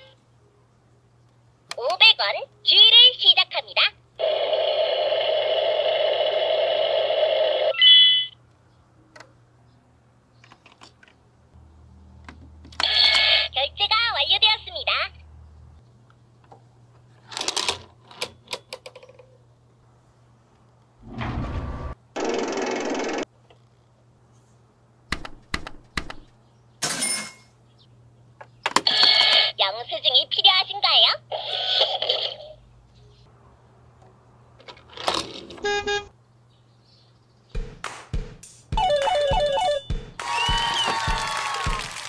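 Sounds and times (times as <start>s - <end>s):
toy electronic sound effect: 4.2s - 8.4s, 12.8s - 13.5s, 38.8s - 39.9s
toy beeping: 7.7s - 8.4s, 38.8s - 39.9s.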